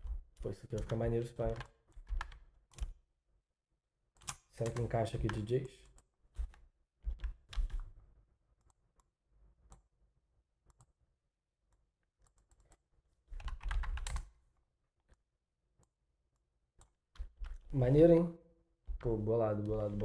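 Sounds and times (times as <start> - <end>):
computer keyboard typing: 0.0 - 3.0, 4.2 - 5.5, 6.4 - 7.9, 13.4 - 14.3.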